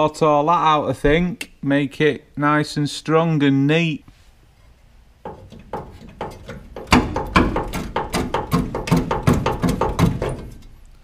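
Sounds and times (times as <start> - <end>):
knocks on sheet metal: 5.2 - 10.6.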